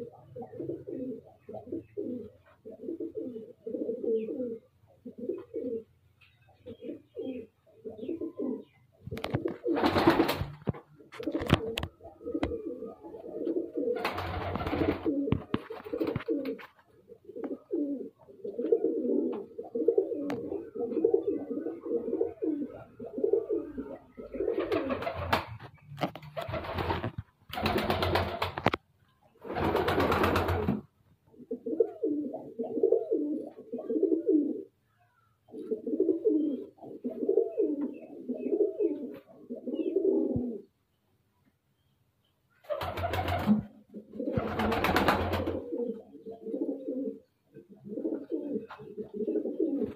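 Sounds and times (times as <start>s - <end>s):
pigeons cooing: 0.0s - 6.0s, 6.6s - 25.6s, 31.4s - 40.7s, 42.6s - 49.9s.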